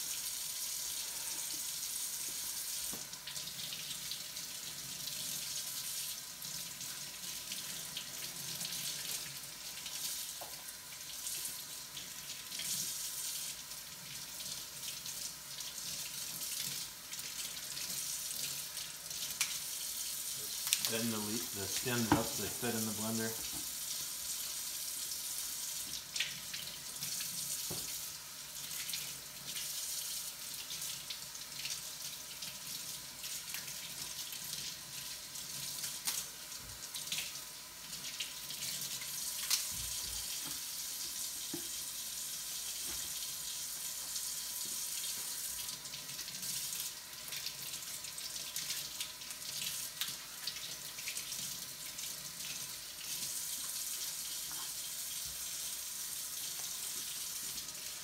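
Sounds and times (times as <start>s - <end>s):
tap running into a sink: 2.2s - 3.2s, 20.5s - 23.8s, 27.6s - 28.0s, 39.5s - 41.8s, 42.8s - 43.2s.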